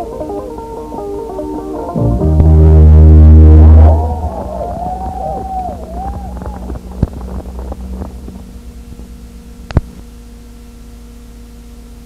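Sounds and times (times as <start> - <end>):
music: 0.0 - 8.3
electrical hum: 0.0 - 12.0.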